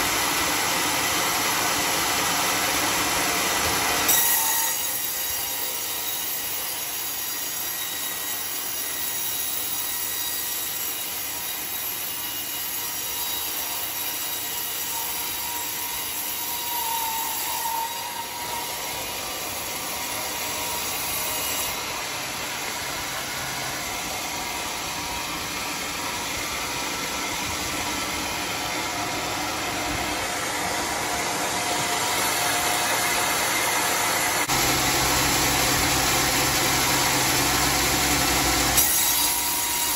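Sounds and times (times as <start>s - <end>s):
band saw cutting log: 0.0s - 39.9s
deep machine sound: 21.8s - 38.8s.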